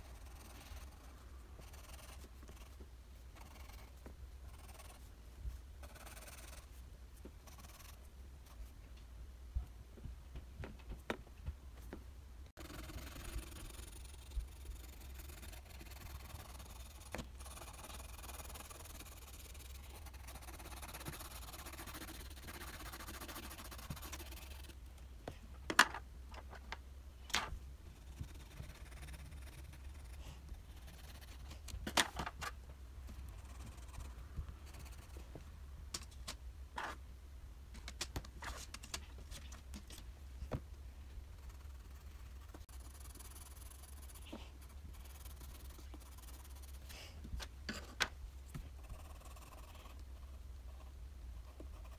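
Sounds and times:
pencil scratching on paper: 0:00.0 - 0:05.1, 0:05.8 - 0:06.8, 0:07.4 - 0:08.7, 0:12.6 - 0:24.8, 0:28.0 - 0:31.6, 0:33.2 - 0:35.3, 0:41.4 - 0:47.0, 0:48.7 - 0:51.9.

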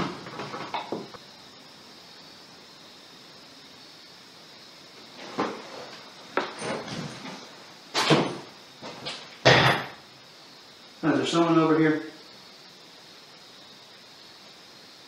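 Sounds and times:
wooden chair scraping: 0:05.1 - 0:09.9
knocks and thuds: 0:08.0 - 0:10.0.

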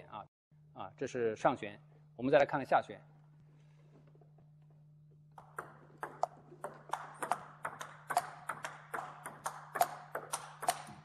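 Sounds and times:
table tennis ball clicking: 0:05.4 - 0:11.0.

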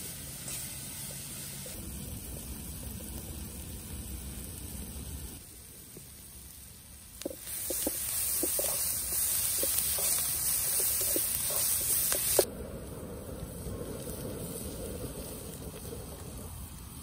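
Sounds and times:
food sizzling in hot oil: 0:00.0 - 0:12.5.

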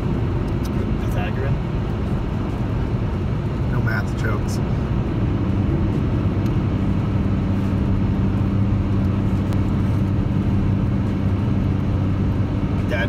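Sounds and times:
car engine droning: 0:00.0 - 0:13.0
tyre and road noise: 0:00.0 - 0:13.0.

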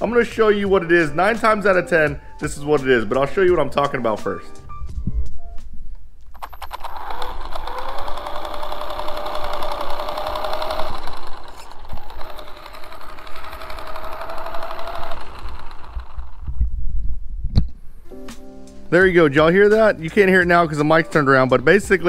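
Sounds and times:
rapid clicking gear grind: 0:06.3 - 0:16.5
electric toy truck motor whining: 0:06.3 - 0:16.6.

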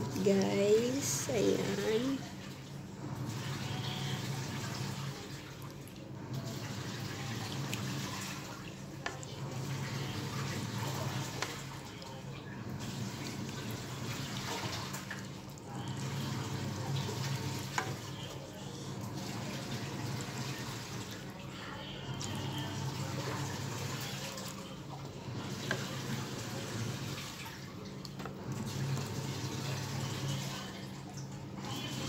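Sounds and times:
sauce bubbling in a pan: 0:00.9 - 0:32.0.

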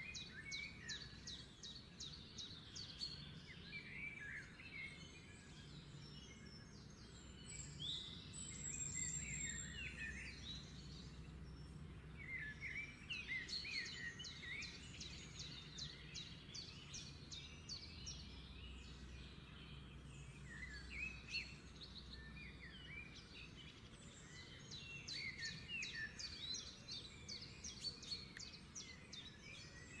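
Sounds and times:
small birds chirping: 0:00.0 - 0:30.0.

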